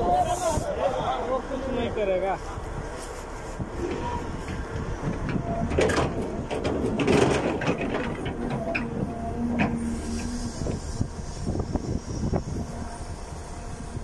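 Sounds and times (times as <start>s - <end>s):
excavator engine rumble: 0.0s - 14.0s
clanks and rattles: 3.8s - 10.8s.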